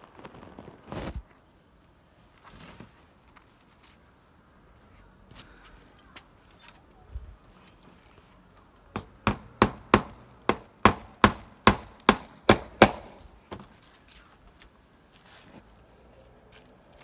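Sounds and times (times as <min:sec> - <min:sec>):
hammer driving nails into wood: 0:08.9 - 0:13.7.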